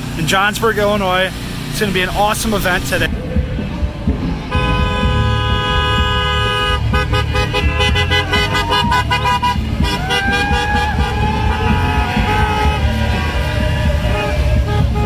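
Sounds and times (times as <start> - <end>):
engines rumbling: 0.0 - 15.0
vehicle horns honking: 4.5 - 15.0.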